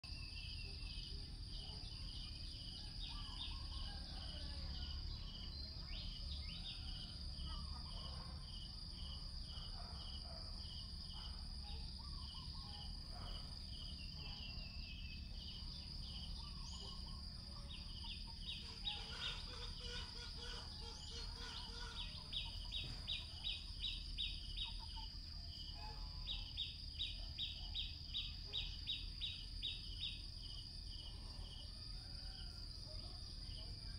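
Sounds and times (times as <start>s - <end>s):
high-pitched insect whine: 8.3s - 33.7s
pulsed insect chirping: 8.5s - 33.9s.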